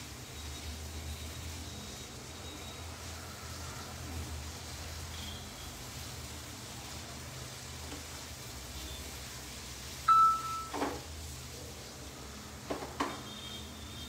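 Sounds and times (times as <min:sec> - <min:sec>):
low kitchen hum: 0:00.0 - 0:14.0
loud electronic beep: 0:10.1 - 0:10.8.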